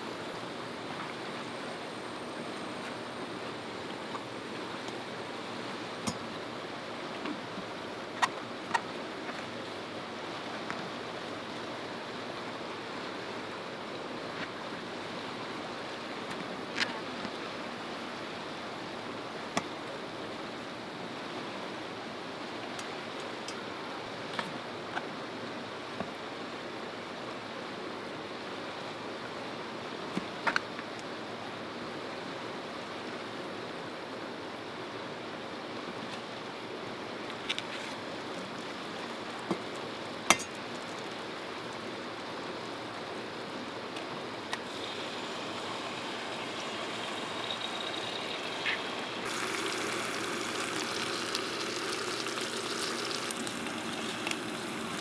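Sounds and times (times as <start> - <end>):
river rushing: 0.0 - 55.0
egg sizzling in frying pan: 44.6 - 55.0.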